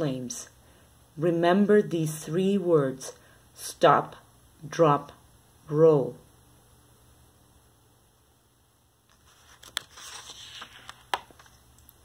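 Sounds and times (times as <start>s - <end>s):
book page turning: 9.1s - 11.7s.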